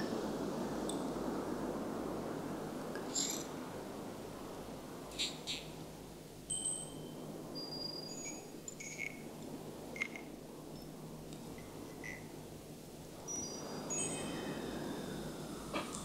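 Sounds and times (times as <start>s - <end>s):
steady low hiss: 0.0s - 16.0s
high chime pings: 6.5s - 8.4s
tinkling clicks: 6.5s - 9.2s, 13.9s - 14.6s.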